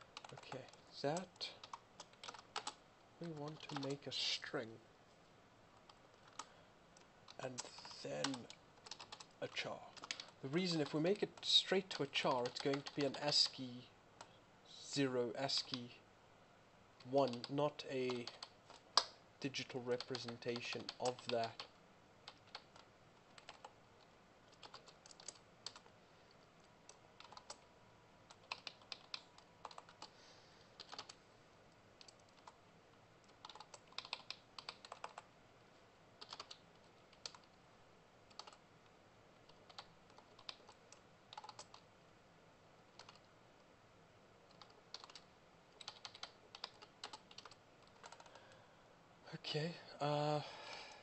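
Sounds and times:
typing on computer keyboard: 0.1 - 4.0, 5.8 - 6.5, 7.3 - 13.6, 17.0 - 19.2, 19.9 - 25.9, 26.9 - 27.7, 28.3 - 30.1, 30.8 - 31.2, 32.0 - 32.6, 33.2 - 35.3, 36.2 - 37.6, 38.3 - 38.6, 39.4 - 41.9, 42.9 - 43.3, 44.5 - 48.6.

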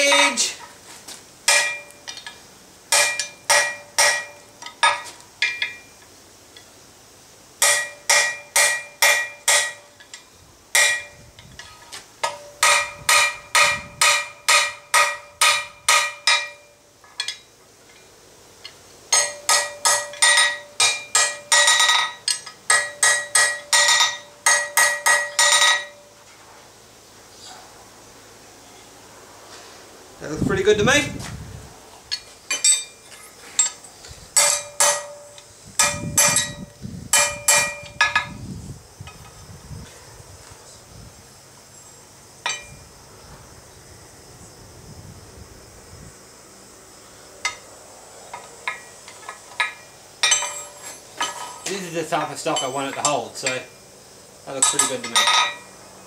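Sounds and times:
hammer ringing on anvil: 1.5 - 2.0, 2.9 - 5.8, 7.6 - 9.9, 10.8 - 11.2, 12.2 - 17.4, 19.1 - 26.1, 34.4 - 38.3, 42.5 - 42.8, 54.6 - 55.7.

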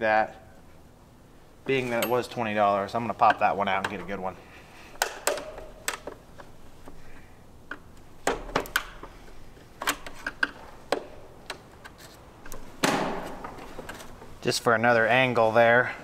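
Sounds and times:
plastic parts clicking and snapping: 5.0 - 7.0, 7.7 - 9.1, 9.8 - 14.3
scraping rustle: 11.8 - 14.5.

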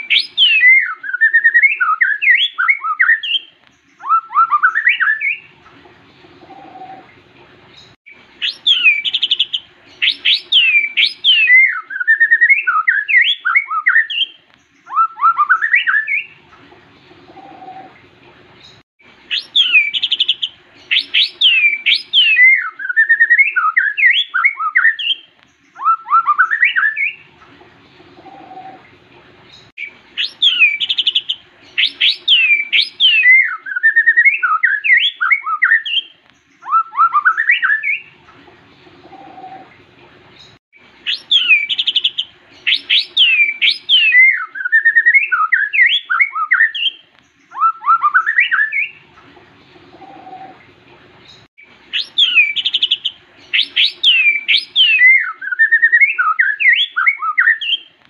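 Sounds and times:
bird singing whistled notes: 0.0 - 5.5, 7.8 - 16.4, 18.6 - 27.3, 29.8 - 38.2, 40.4 - 49.0, 51.3 - 57.9.

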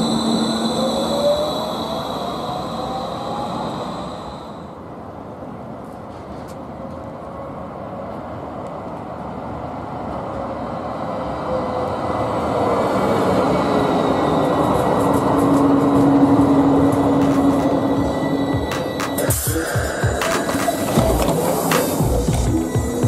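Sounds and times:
light-rail cars rolling past: 0.0 - 23.0.

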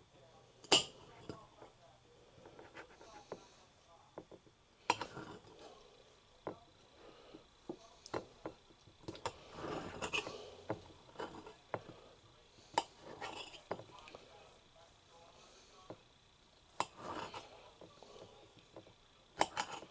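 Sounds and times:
knife cutting tomato: 16.8 - 17.5.

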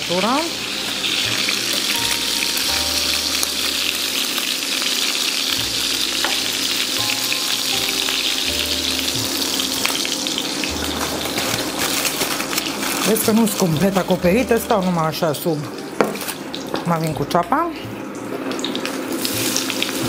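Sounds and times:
meat sizzling in frying pan: 0.0 - 20.0.

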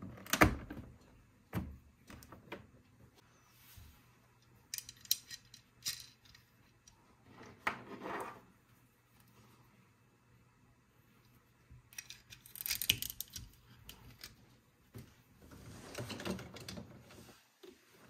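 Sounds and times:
plastic toy parts clicking: 4.7 - 6.5, 11.9 - 14.4.

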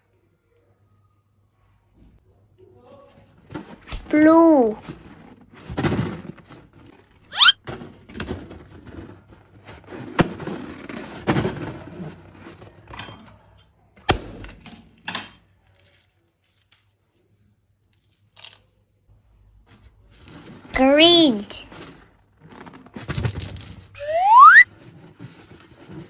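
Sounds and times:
high rising squeak: 7.3 - 7.6, 24.0 - 24.6.

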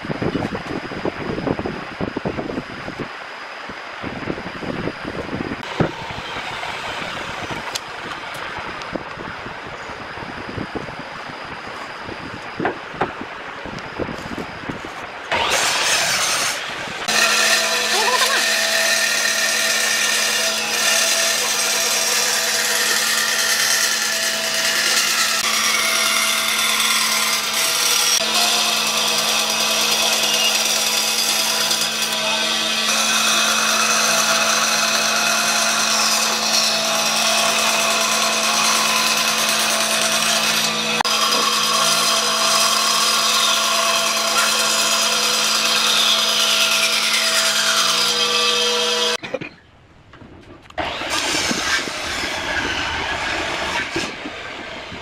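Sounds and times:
motor hum: 0.0 - 46.7
band saw cutting wood: 5.6 - 9.2, 14.2 - 49.2, 50.8 - 55.0.

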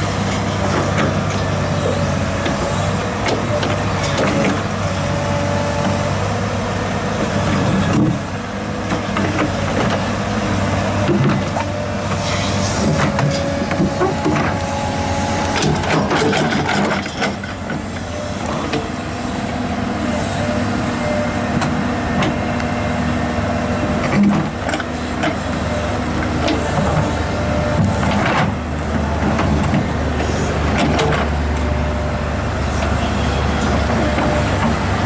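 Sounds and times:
excavator diesel engine running: 0.0 - 35.0
metal clanks and knocks: 15.6 - 17.8.

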